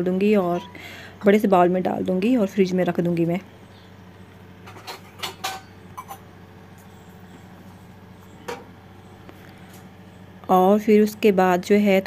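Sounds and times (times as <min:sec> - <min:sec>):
steady low hum: 0:00.0 - 0:12.0
metal kitchenware clinking: 0:04.7 - 0:06.2.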